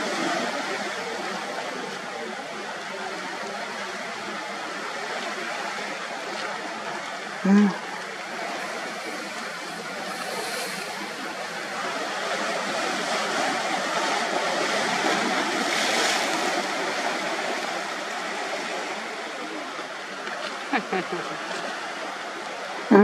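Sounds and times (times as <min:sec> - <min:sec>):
sea surf rushing: 0:00.0 - 0:22.9.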